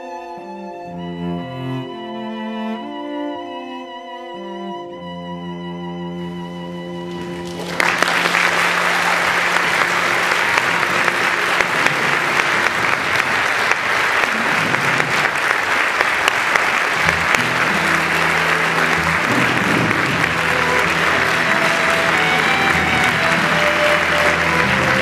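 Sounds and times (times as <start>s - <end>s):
music playing: 0.0s - 25.0s
audience applauding: 7.0s - 25.0s.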